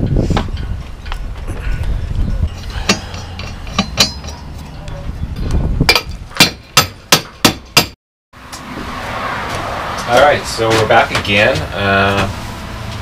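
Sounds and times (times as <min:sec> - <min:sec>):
sharp metallic knocks: 0:02.5 - 0:04.8, 0:05.8 - 0:08.7.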